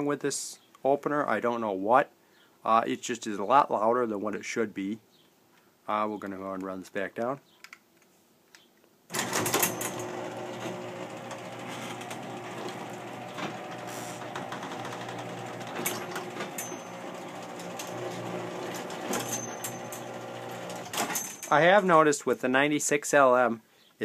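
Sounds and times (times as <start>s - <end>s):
garage door opener motor hum: 9.1s - 21.5s
rattling and clicks from drive: 9.1s - 21.5s.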